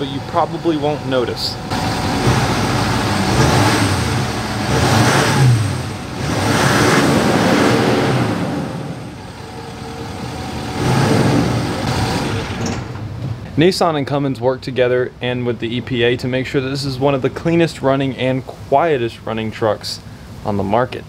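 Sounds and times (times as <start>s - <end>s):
diesel truck engine revving: 0.0s - 13.1s.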